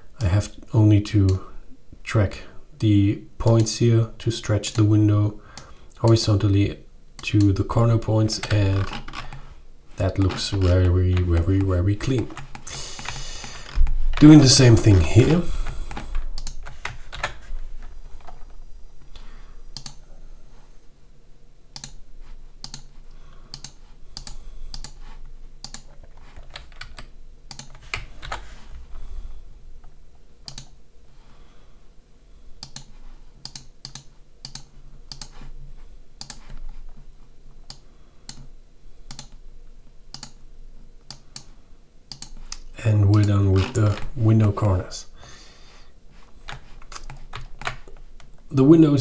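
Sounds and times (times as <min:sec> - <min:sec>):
faint low hum: 0:00.0 - 0:49.0
mouse and keyboard clicks: 0:15.6 - 0:17.4, 0:19.8 - 0:20.0, 0:23.5 - 0:25.0, 0:25.6 - 0:28.4.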